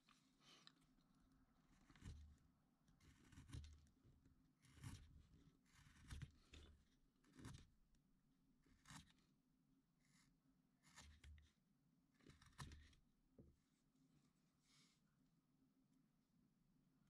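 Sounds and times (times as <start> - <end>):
carving blade scraping wood: 1.7 - 7.9, 8.6 - 9.3, 10.0 - 13.1.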